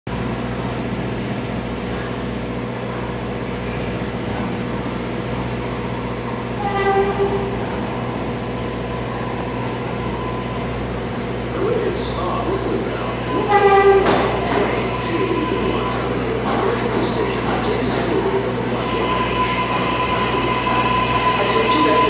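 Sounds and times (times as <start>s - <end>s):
train low rumble: 0.1s - 22.0s
subway train horn: 5.8s - 10.7s, 13.0s - 16.5s, 18.4s - 22.0s.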